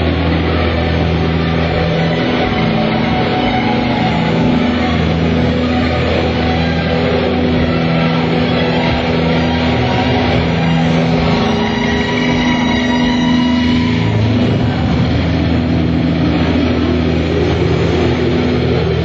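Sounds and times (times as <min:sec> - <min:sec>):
distorted electric guitar: 0:00.0 - 0:19.0.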